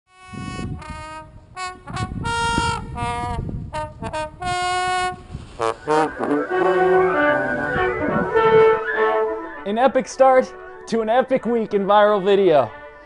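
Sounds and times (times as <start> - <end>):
low beat: 4.0 - 9.7
lead instrument playing short notes: 5.0 - 13.0
rising sweep: 5.5 - 9.8.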